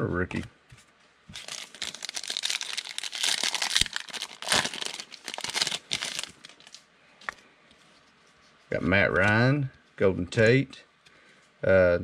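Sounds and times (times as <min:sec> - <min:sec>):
foil wrapper crinkling and tearing: 0:01.3 - 0:06.8.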